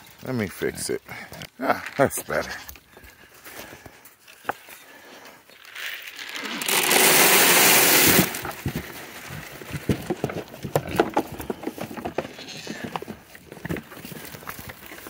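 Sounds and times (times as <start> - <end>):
dry feed pouring into trough: 5.8 - 8.5
goats knocking and clicking: 8.4 - 15.0.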